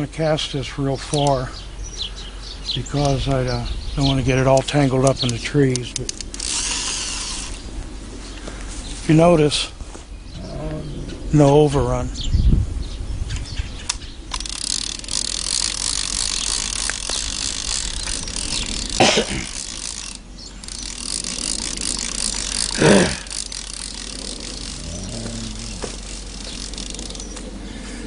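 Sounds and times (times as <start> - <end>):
fishing reel clicking: 4.5 - 7.6, 14.3 - 27.5.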